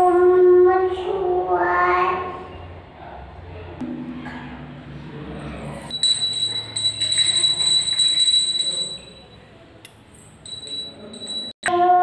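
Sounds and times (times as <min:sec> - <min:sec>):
hand bell ringing: 0:05.9 - 0:09.5, 0:10.2 - 0:11.6.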